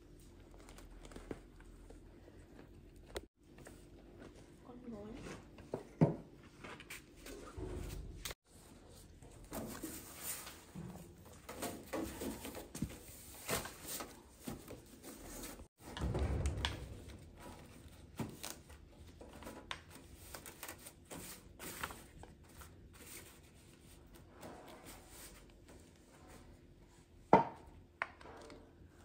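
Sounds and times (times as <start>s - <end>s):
low rumble: 16.0s - 17.4s.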